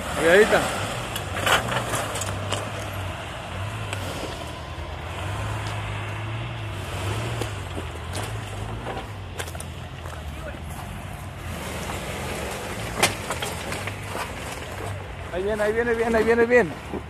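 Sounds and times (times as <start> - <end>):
truck engine at low revs: 0.0 - 17.0
stones knocking under tyres: 7.4 - 10.2, 12.5 - 15.1.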